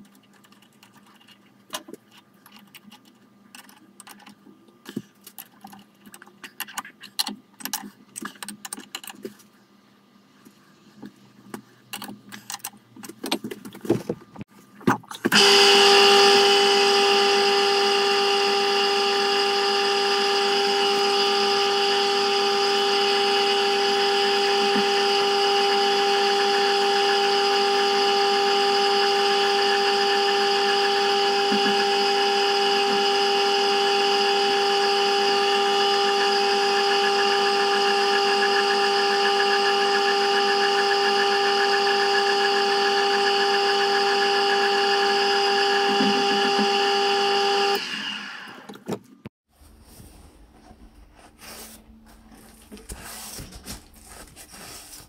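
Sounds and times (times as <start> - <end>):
electric motor whining: 15.3 - 48.8.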